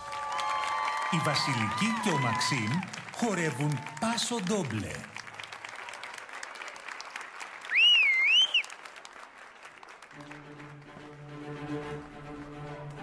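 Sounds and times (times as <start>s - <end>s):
audience clapping: 0.0s - 13.0s
loud wavering whistle: 7.7s - 8.7s.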